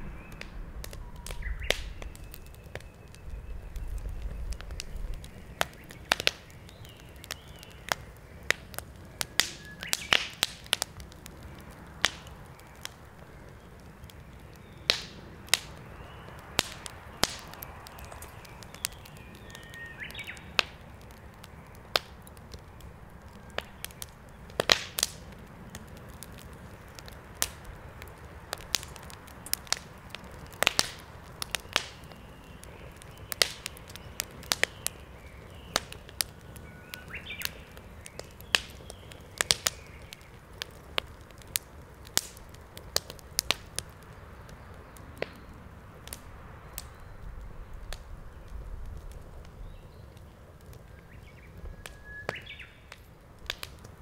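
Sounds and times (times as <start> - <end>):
low steady rumble: 0.0 - 5.5
faint bird chirp: 0.0 - 8.1, 17.5 - 20.6, 31.4 - 40.4, 46.6 - 48.7, 50.9 - 52.9
wood fire crackling and popping: 0.0 - 54.0.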